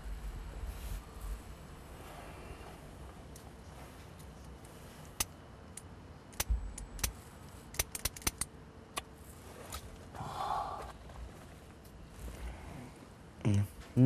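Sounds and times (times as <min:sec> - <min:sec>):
low steady background hum: 0:00.0 - 0:14.0
sharp irregular clicks: 0:04.5 - 0:09.1.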